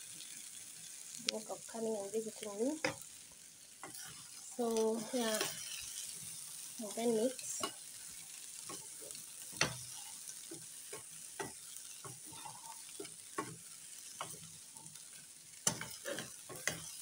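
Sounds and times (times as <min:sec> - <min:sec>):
faint frying sizzle: 0:00.0 - 0:17.0
wooden spoon scraping a saucepan: 0:10.9 - 0:13.6, 0:15.6 - 0:17.0.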